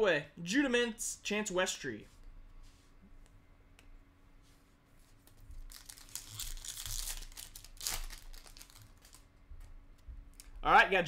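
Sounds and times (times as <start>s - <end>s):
foil wrapper tearing and crinkling: 5.6s - 9.3s.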